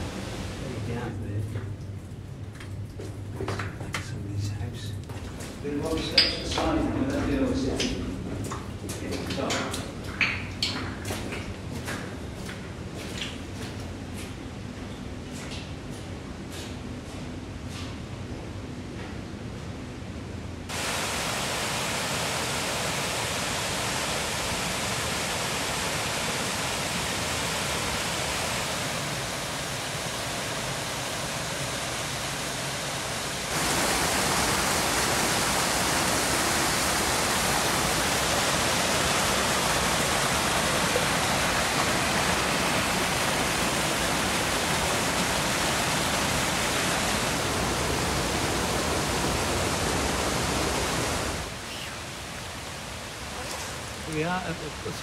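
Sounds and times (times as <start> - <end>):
stream rushing over rocks: 20.7 - 55.0.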